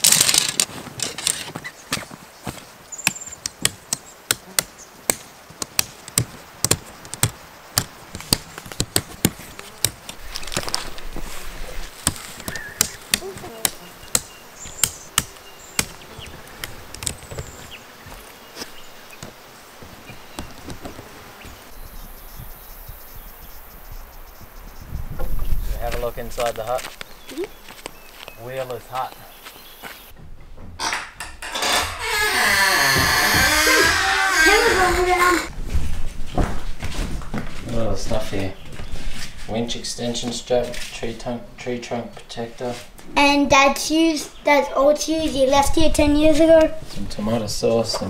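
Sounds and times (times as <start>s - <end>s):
tent poles clicking together: 0.0s - 1.7s, 3.0s - 11.0s
canvas rustling: 8.0s - 14.0s
high insect drone: 12.4s - 30.1s, 31.5s - 35.5s.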